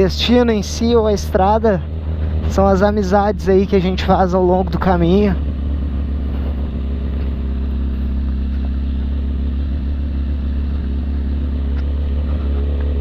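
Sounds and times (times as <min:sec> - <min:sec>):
motorcycle engine running: 0:00.0 - 0:13.0
tyres on gravel: 0:00.0 - 0:13.0.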